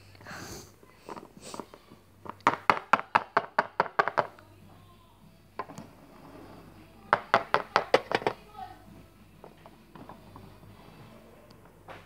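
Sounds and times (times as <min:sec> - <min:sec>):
plastic toy tapping on table: 0:02.3 - 0:04.3, 0:07.1 - 0:08.4.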